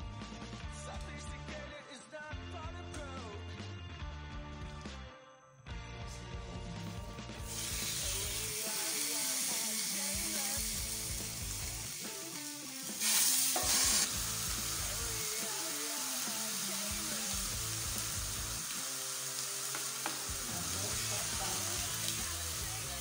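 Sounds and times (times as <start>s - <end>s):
chicken sizzling in a grill pan: 7.4s - 23.0s.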